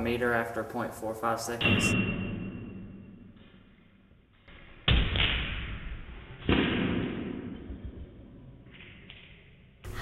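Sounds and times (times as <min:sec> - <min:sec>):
gun bangs ringing in a room: 0:01.6 - 0:03.8.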